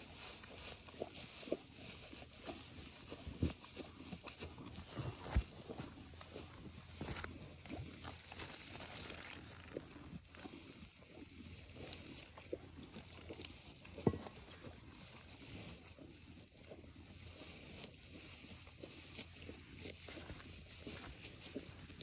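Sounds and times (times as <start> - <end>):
milk squirting into a pail: 7.0 - 10.6, 11.7 - 15.5.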